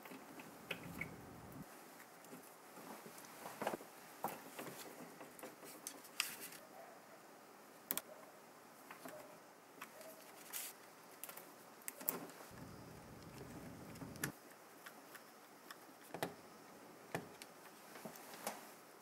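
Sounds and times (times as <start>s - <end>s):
wires rustling: 0.0s - 1.6s, 9.8s - 15.2s.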